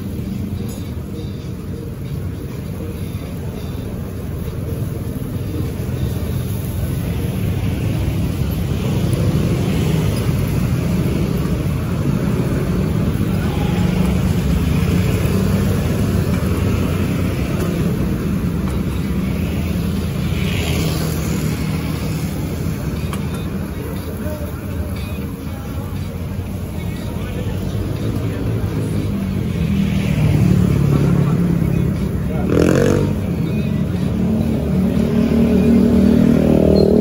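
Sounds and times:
motorbikes and cars passing: 0:00.0 - 0:37.0
road traffic rumble: 0:00.0 - 0:37.0.

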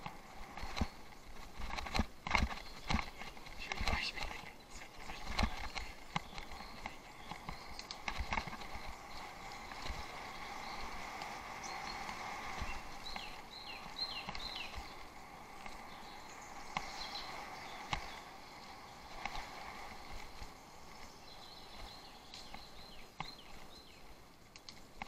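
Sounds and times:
bicycle knocks and rattles: 0:00.0 - 0:04.1, 0:05.3 - 0:11.3.

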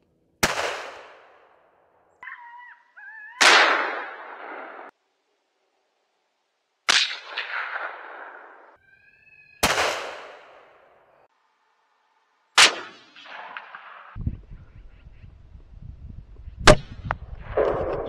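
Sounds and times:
rifle shots with echo: 0:00.4 - 0:01.4, 0:03.4 - 0:04.9, 0:06.9 - 0:08.8, 0:09.6 - 0:10.7, 0:12.6 - 0:14.2
wind on microphone: 0:14.2 - 0:18.0.

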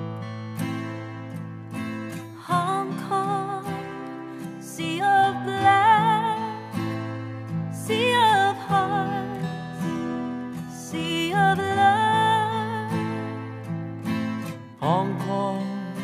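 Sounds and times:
acoustic guitar: 0:00.0 - 0:16.0
woman singing: 0:02.1 - 0:16.0
man singing: 0:14.8 - 0:16.0.

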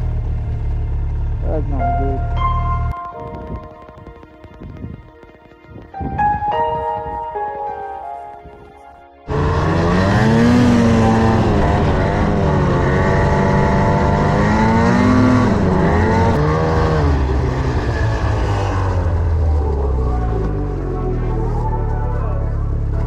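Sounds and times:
snowmobile engine revving: 0:09.3 - 0:23.0.

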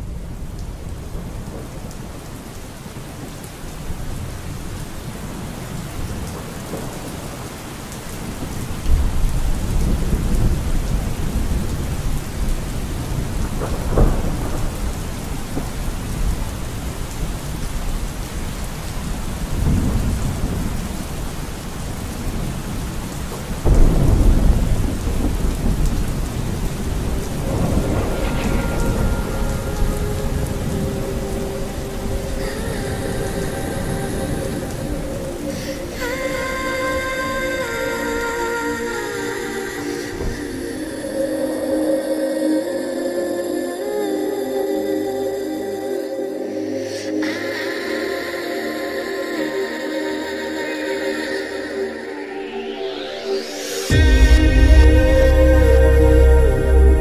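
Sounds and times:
steady rain: 0:00.0 - 0:57.0
thunder crack: 0:23.6 - 0:32.8, 0:53.0 - 0:57.0
thunder rolling: 0:23.6 - 0:35.4, 0:52.9 - 0:57.0.

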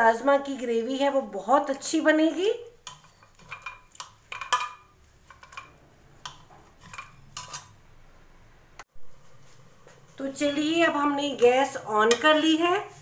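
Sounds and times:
ladle knocking and scraping pot: 0:02.8 - 0:07.8, 0:10.4 - 0:13.0.

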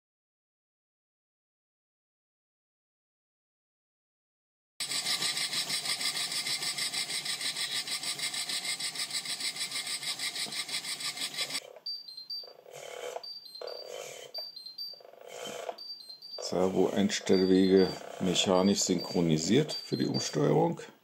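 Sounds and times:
small servo motor whirring: 0:04.8 - 0:11.7, 0:12.6 - 0:18.4
short high beeps: 0:11.8 - 0:12.5, 0:13.2 - 0:20.4.

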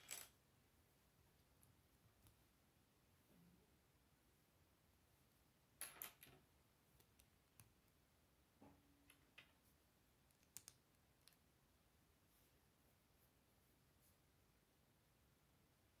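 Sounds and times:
plastic bricks clicking together: 0:10.3 - 0:11.4.

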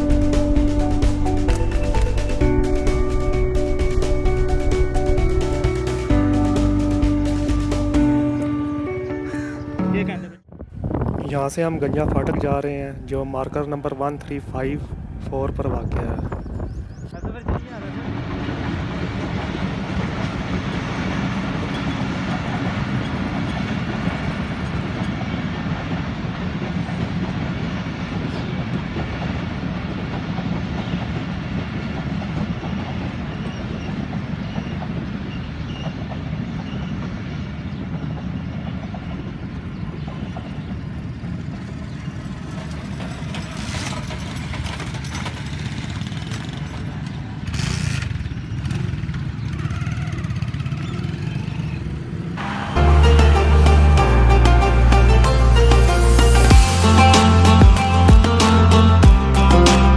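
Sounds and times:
train coaches rolling on rails: 0:12.9 - 0:59.0.

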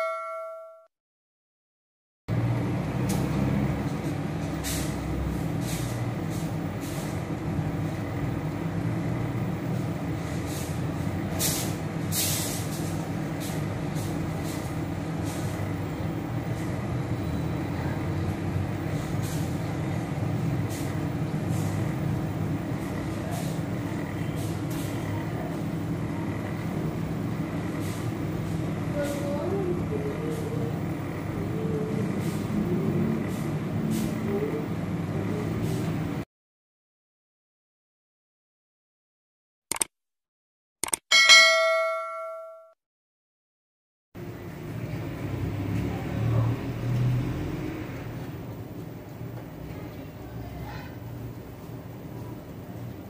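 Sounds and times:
oven fan humming: 0:02.3 - 0:36.2
clicks: 0:39.7 - 0:39.9, 0:40.8 - 0:41.0.

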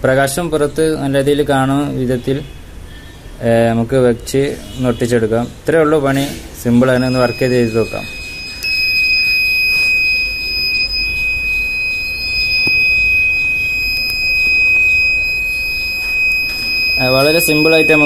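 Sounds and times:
alarm buzzer high-pitched tone: 0:06.8 - 0:18.0.

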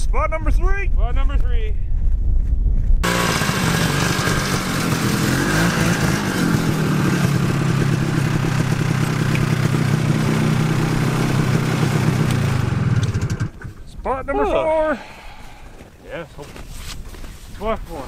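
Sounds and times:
snowmobile engine drone: 0:03.0 - 0:13.5.

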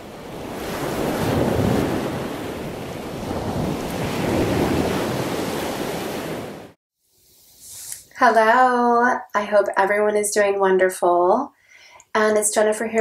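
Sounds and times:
ocean waves rushing: 0:00.0 - 0:06.8.

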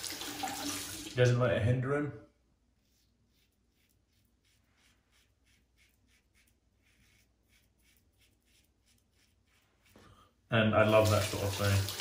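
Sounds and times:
razor scraping stubble: 0:02.8 - 0:10.0.

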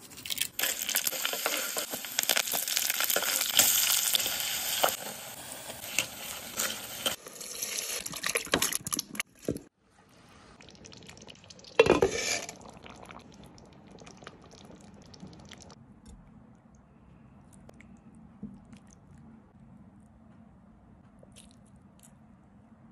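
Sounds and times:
onions sizzling in oil: 0:00.6 - 0:08.0.

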